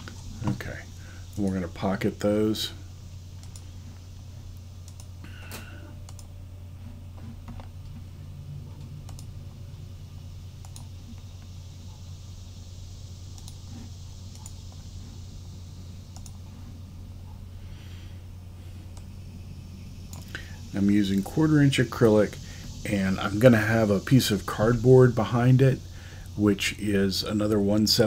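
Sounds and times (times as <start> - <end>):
steady low hum: 0.0 - 28.0
mouse and keyboard clicks: 16.1 - 16.4.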